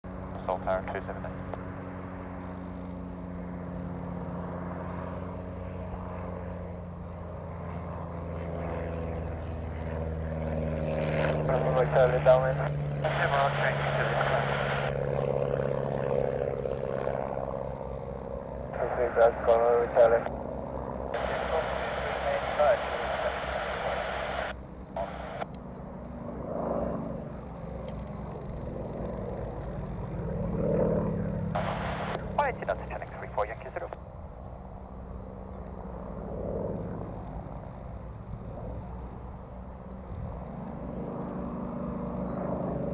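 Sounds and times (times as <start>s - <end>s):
propeller plane engine drone: 0.0s - 42.9s
radio hiss: 0.4s - 1.4s, 11.5s - 15.7s, 18.6s - 25.5s, 31.6s - 34.0s.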